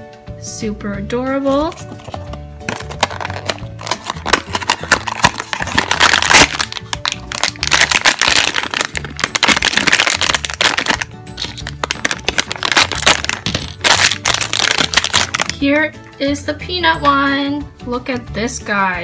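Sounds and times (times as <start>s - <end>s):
foil wrapper crinkling: 1.9s - 15.6s.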